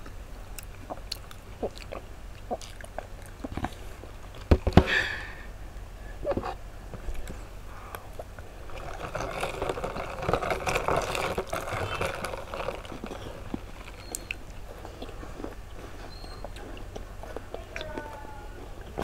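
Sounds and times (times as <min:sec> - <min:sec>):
cookie chewing and crunching: 0:00.0 - 0:04.6, 0:06.2 - 0:19.0
mouth clicks: 0:00.6 - 0:03.8, 0:13.9 - 0:18.2.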